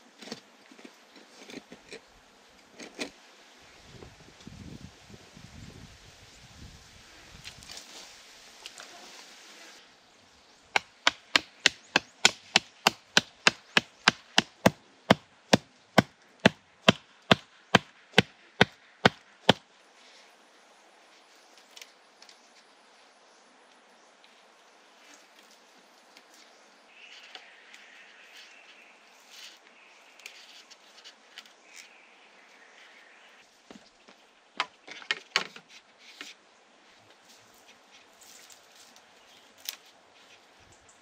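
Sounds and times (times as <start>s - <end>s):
faint outdoor hiss: 0.0s - 41.0s
hand tool chopping blows: 10.7s - 19.6s.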